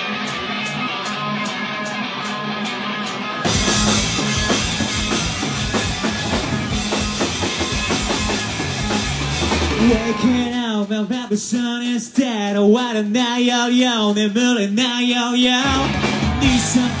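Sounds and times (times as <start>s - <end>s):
bass guitar: 0.0s - 10.7s, 15.4s - 17.0s
electric guitar chords: 0.0s - 11.7s, 15.4s - 17.0s
drum kit: 0.0s - 17.0s
high ticking beat: 3.5s - 17.0s.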